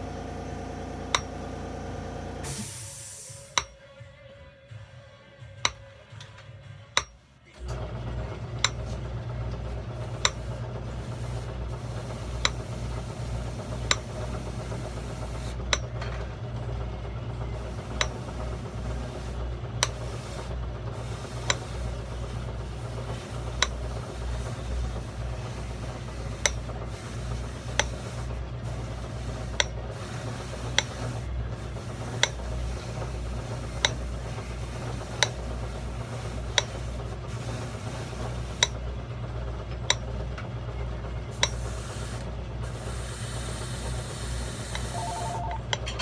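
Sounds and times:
electric motor humming: 0:00.0 - 0:02.7, 0:16.9 - 0:38.8.

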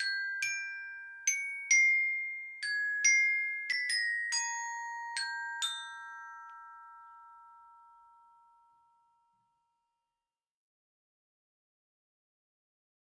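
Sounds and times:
glockenspiel notes: 0:00.0 - 0:10.0.

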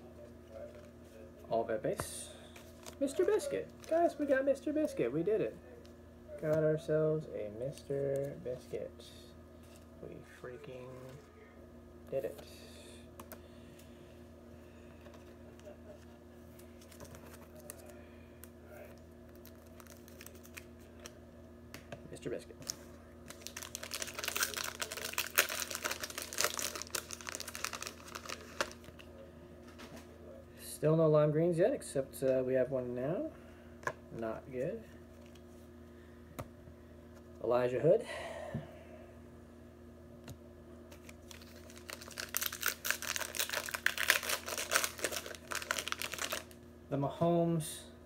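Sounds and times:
wrapper tearing and crinkling: 0:19.3 - 0:20.7, 0:22.6 - 0:29.0, 0:40.9 - 0:46.6.

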